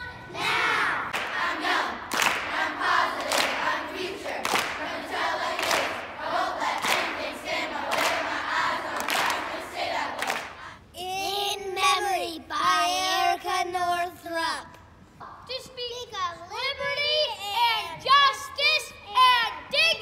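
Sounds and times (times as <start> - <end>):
children's choir singing: 0.0 - 10.8
hand claps on a beat: 2.1 - 4.9, 5.5 - 6.2, 6.8 - 7.2, 7.9 - 9.6, 10.2 - 10.6.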